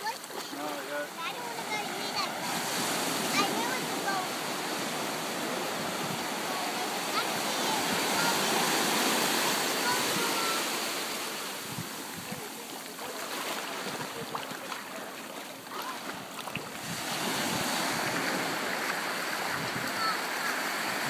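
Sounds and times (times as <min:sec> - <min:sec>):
surf washing up beach: 0:00.0 - 0:21.0.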